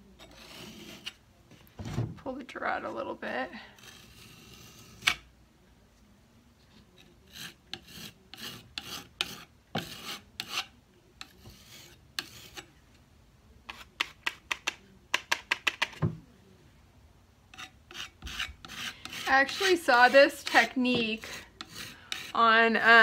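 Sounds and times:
putty knife scraping wood: 0:00.2 - 0:01.2, 0:03.8 - 0:05.2, 0:07.0 - 0:12.7, 0:17.5 - 0:22.4.

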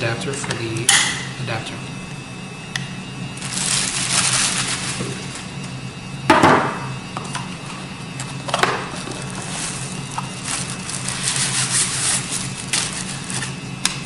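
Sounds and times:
steady low hum: 0:00.0 - 0:14.0
plastic sleeve rustling: 0:03.3 - 0:05.7, 0:08.2 - 0:13.6.

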